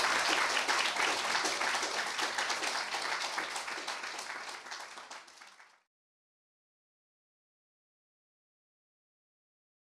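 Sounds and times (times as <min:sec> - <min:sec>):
audience applauding: 0:00.0 - 0:05.9.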